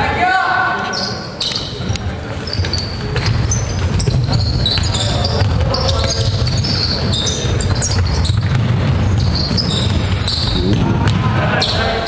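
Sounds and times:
sneakers squeaking: 0:00.8 - 0:12.0
basketball bouncing: 0:02.4 - 0:11.8
low hall rumble: 0:07.8 - 0:12.0.

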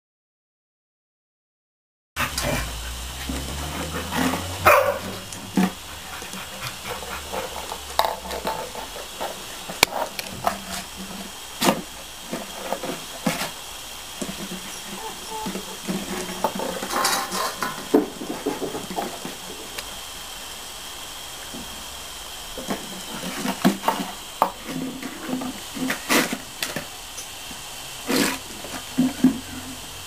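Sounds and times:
puppy barks: 0:03.9 - 0:05.3.

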